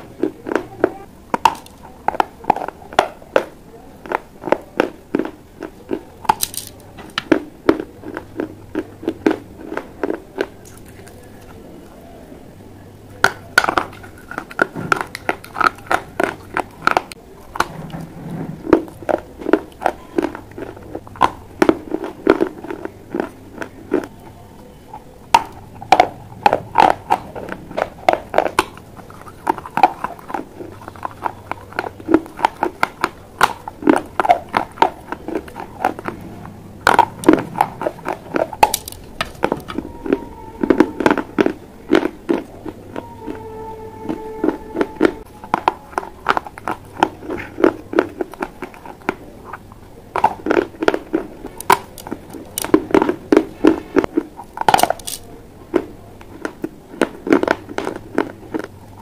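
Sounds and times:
clay pipe pieces crunching: 0:00.0 - 0:11.6, 0:13.1 - 0:36.2, 0:36.8 - 0:43.4, 0:44.1 - 0:59.0.

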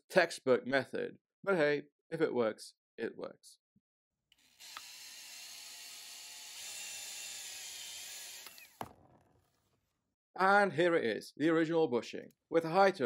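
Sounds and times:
power tool whirring: 0:04.3 - 0:09.1.

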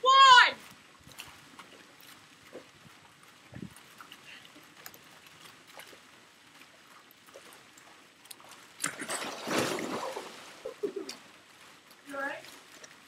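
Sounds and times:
loud water splash: 0:08.8 - 0:10.8
body slapping a surfboard: 0:08.8 - 0:11.2.

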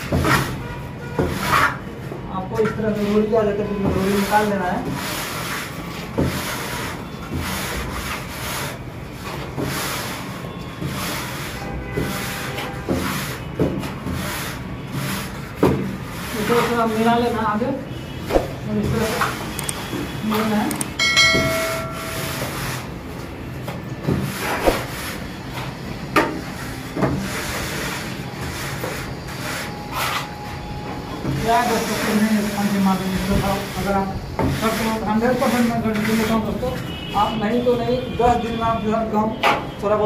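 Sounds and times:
chiming sound effect: 0:21.0 - 0:22.5.

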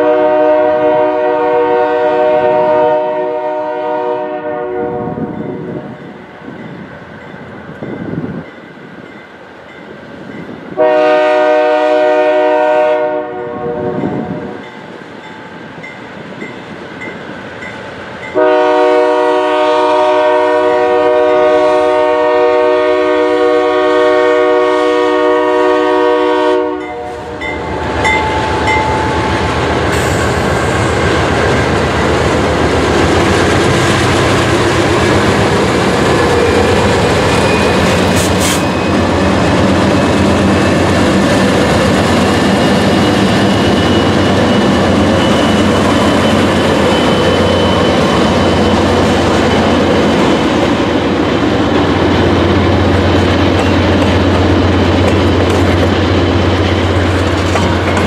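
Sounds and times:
locomotive air horn: 0:00.0 - 0:05.4, 0:10.8 - 0:14.6, 0:18.4 - 0:27.4
locomotive engines and wheels rumbling: 0:22.0 - 0:58.0.

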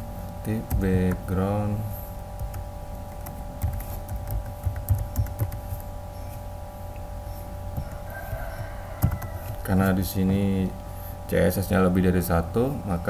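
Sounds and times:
electrical hum: 0:00.0 - 0:13.0
keyboard keys clicking: 0:02.4 - 0:05.8.

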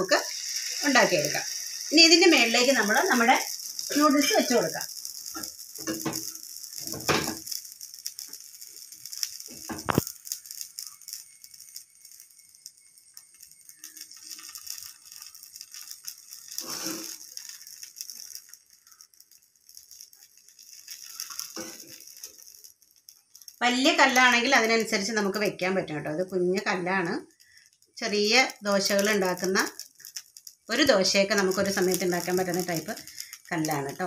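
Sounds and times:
batter sizzling on griddle: 0:00.0 - 0:34.0
metal spatula scraping and clattering: 0:16.5 - 0:17.2, 0:21.0 - 0:22.2.

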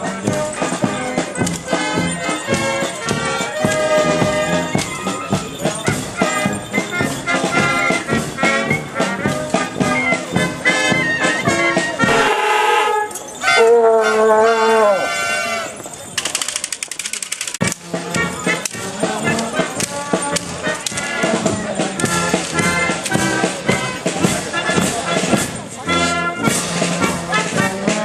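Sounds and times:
steady drum beat: 0:00.0 - 0:12.6, 0:17.6 - 0:28.0
marching brass band playing: 0:00.0 - 0:15.8, 0:17.6 - 0:28.0
loud held brass chord: 0:12.0 - 0:13.1.

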